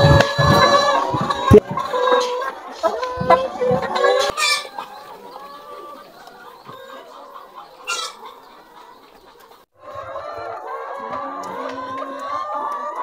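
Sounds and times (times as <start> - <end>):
hens clucking: 0.0 - 13.0
hen squawk: 7.8 - 8.4.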